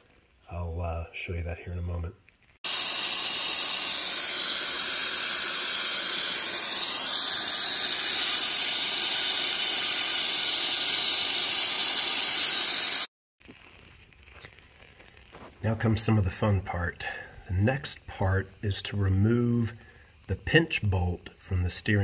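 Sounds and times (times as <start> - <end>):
vacuum bleeder hissing: 2.6 - 13.1.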